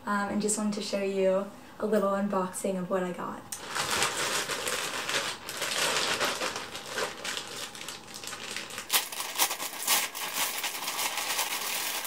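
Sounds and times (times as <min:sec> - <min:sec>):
plastic mailer bag crinkling: 0:03.6 - 0:12.0.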